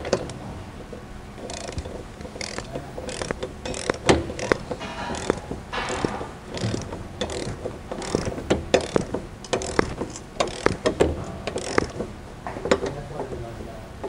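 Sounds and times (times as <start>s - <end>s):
ratchet wrench clicking: 1.4s - 12.1s.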